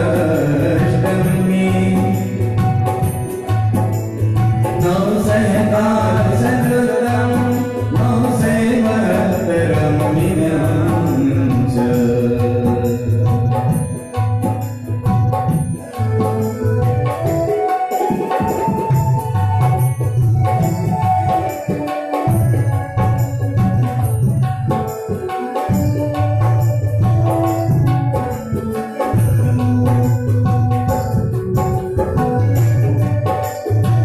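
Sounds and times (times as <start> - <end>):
man singing through pa: 0.0 - 3.1, 4.8 - 13.5
sustained keyboard chords: 0.0 - 34.0.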